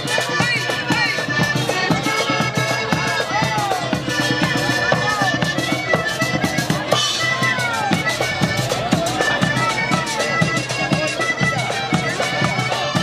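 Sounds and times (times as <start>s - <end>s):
accordion playing a melody: 0.0s - 13.0s
drums keeping a steady beat: 0.0s - 13.0s.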